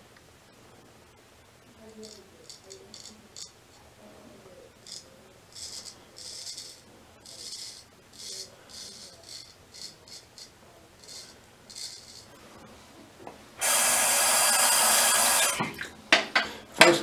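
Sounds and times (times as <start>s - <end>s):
razor scraping stubble: 4.8s - 12.3s.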